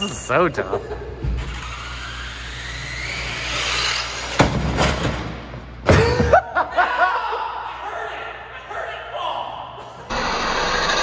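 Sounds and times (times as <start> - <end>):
electric motor whining: 1.4 - 4.4, 10.1 - 11.0.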